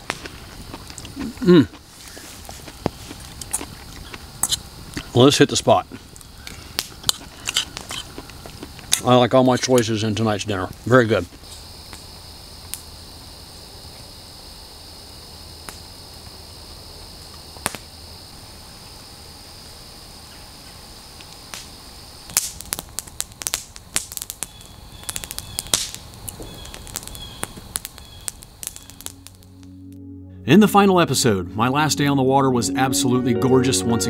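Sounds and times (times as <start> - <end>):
campfire crackling and popping: 0.0 - 12.9, 15.6 - 16.4, 17.0 - 17.9, 21.2 - 29.6
high-pitched insect chorus: 0.3 - 29.6.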